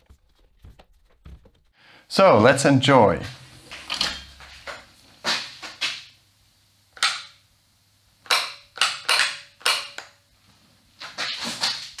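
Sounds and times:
angle grinder clunking and rattling: 0:03.7 - 0:05.8.

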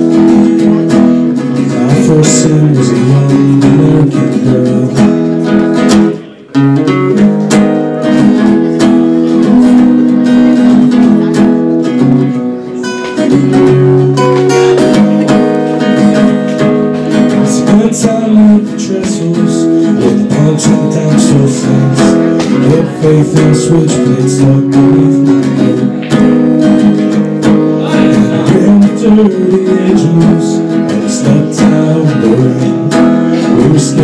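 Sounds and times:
acoustic guitar strumming chords: 0:00.0 - 0:34.0.

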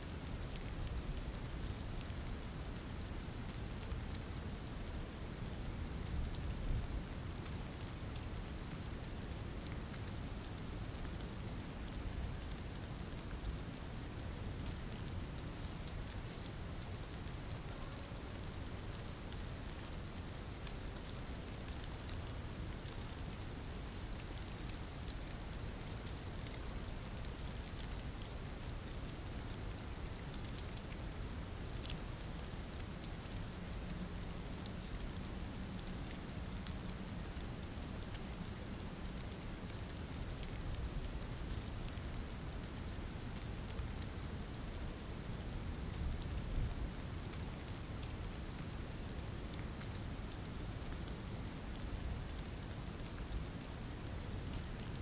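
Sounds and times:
rain falling: 0:00.1 - 0:55.0.

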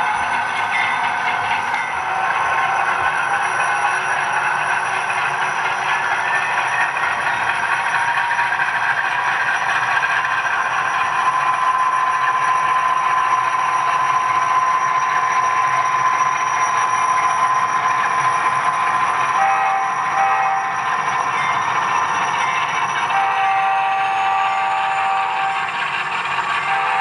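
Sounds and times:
steady high tone: 0:00.0 - 0:07.4, 0:19.3 - 0:27.0
model train running on track: 0:00.0 - 0:27.0.

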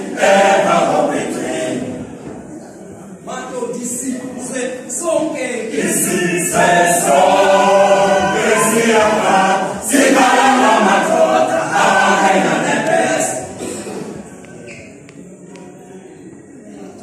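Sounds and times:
male choir singing a cappella: 0:00.0 - 0:02.4, 0:05.5 - 0:14.1.

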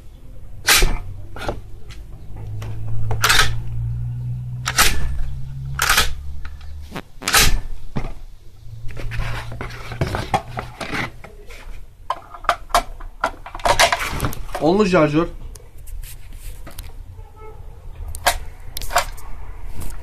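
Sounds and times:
shotgun action clacking: 0:04.7 - 0:05.2, 0:05.8 - 0:06.2
rustling handling noise: 0:05.8 - 0:17.0.

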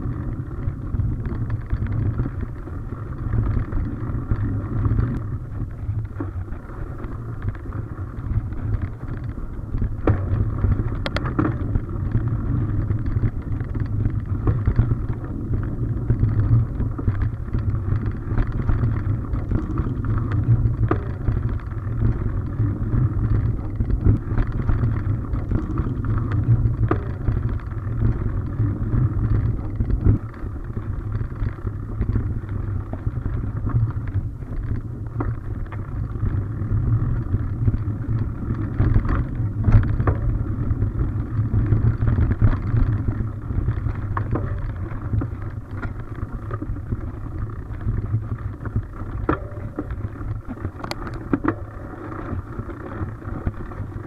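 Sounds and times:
bike knocks and rattles: 0:00.0 - 0:54.0
bike tyre rumble on dirt: 0:00.0 - 0:54.0
wind on microphone: 0:00.0 - 0:54.0.

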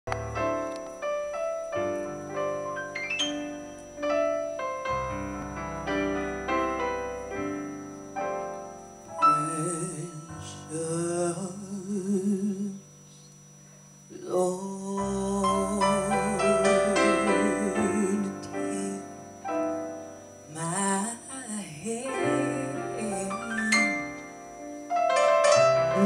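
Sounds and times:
keyboard piano chords: 0:00.1 - 0:12.8, 0:14.9 - 0:26.0
woman singing with vibrato: 0:09.3 - 0:12.8, 0:14.1 - 0:19.1, 0:20.5 - 0:24.1.

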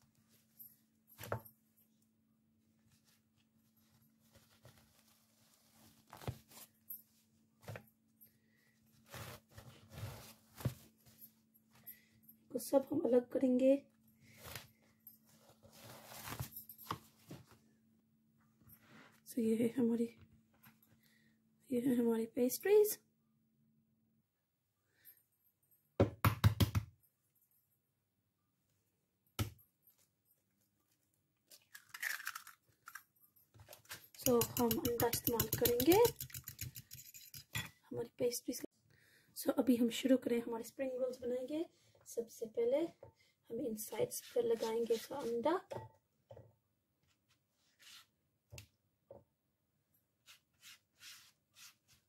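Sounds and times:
crinkling rustle: 0:03.8 - 0:06.8
objects knocking on a worktop: 0:26.0 - 0:26.9.

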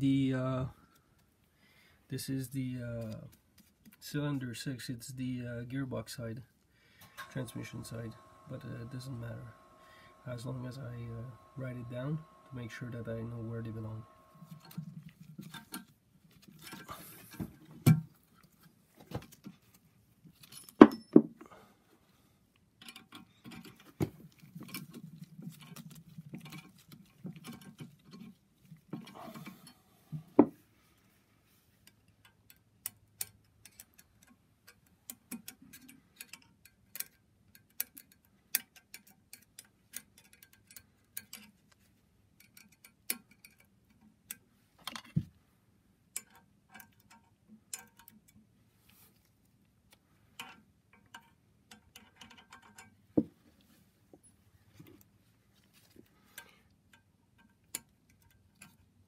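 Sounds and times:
metal tool clicks and knocks: 0:31.9 - 0:41.6, 0:46.1 - 0:48.4, 0:50.4 - 0:53.3.

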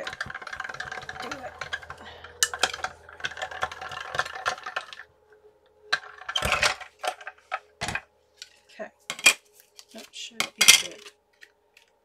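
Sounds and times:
hand-cranked machine clicking clatter: 0:00.0 - 0:05.0.

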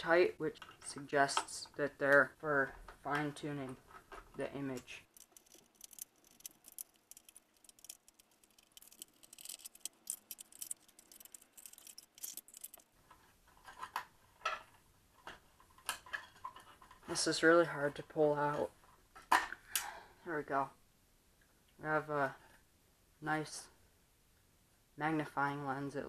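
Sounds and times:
sharp clicks of parts handled: 0:05.1 - 0:12.9
screwdriver clicking and ticking: 0:05.2 - 0:12.8.

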